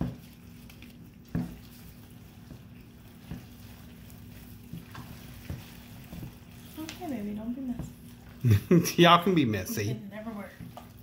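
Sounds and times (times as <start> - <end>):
wet squelching of raw meat: 0.0 - 7.4.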